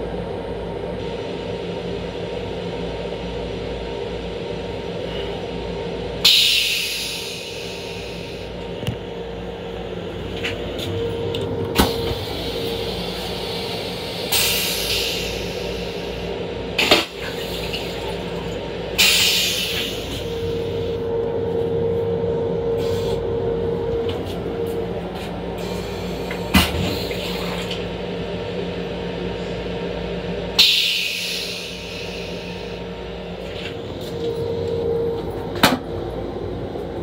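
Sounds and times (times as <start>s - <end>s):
train rumble and hum: 0.0s - 37.0s
air hissing: 6.2s - 8.5s, 11.8s - 16.3s, 19.0s - 21.0s, 30.6s - 32.9s.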